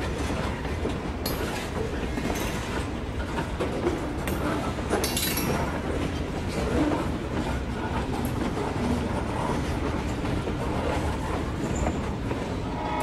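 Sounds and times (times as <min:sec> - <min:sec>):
model train cars rattling on rails: 0:00.0 - 0:13.0.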